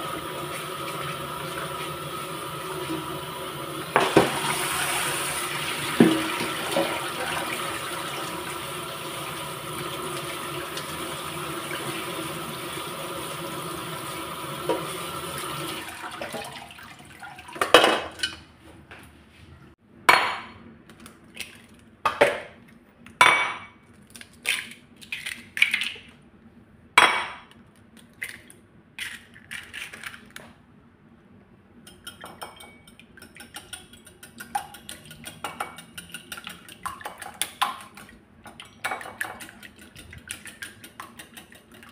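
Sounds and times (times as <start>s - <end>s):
tap water running into colander: 0.0s - 17.8s
whisk beating eggs in bowl: 32.0s - 41.9s.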